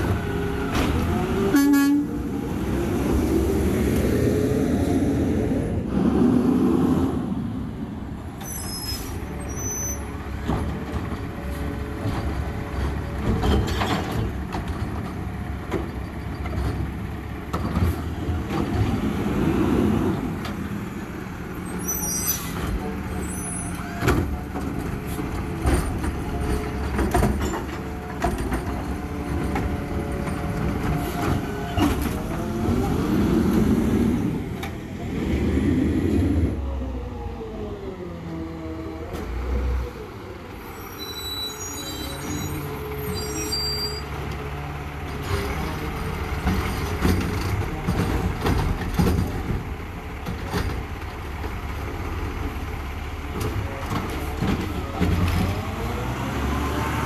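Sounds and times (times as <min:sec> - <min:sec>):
knocks and clanks: 0:24.0 - 0:32.4, 0:46.4 - 0:51.6.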